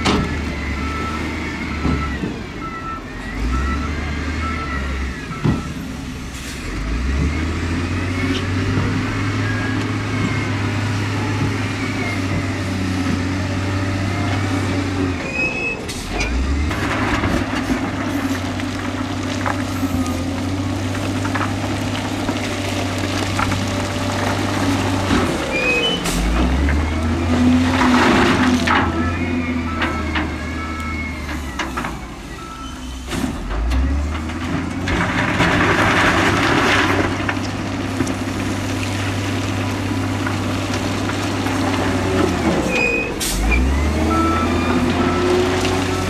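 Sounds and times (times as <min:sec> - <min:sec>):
diesel engine revving: 0:00.0 - 0:46.0.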